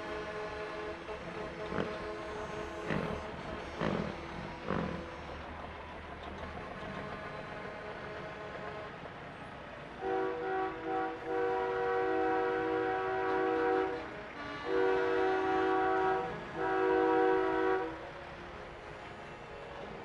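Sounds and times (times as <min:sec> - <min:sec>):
truck air horn blasts: 0:00.0 - 0:05.4, 0:10.0 - 0:18.0
diesel truck engines: 0:00.0 - 0:20.0.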